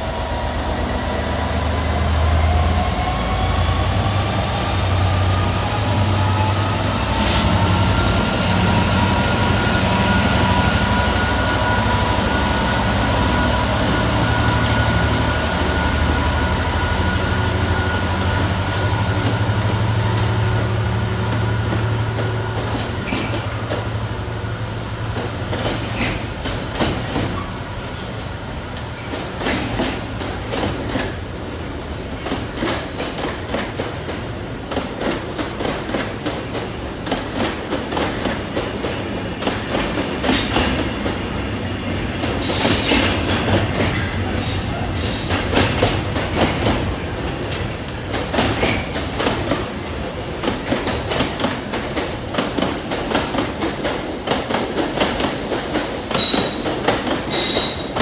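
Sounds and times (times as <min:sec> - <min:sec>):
diesel locomotive engine whine: 0:00.0 - 0:32.2.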